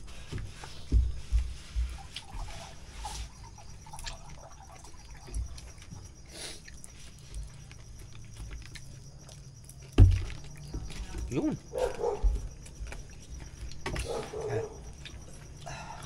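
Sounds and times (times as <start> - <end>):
people chewing: 0.0 - 16.0.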